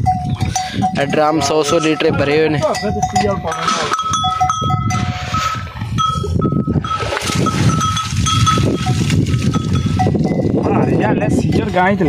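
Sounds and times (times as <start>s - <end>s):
cattle bells ringing: 0.0s - 12.0s
water splashing: 3.5s - 10.1s.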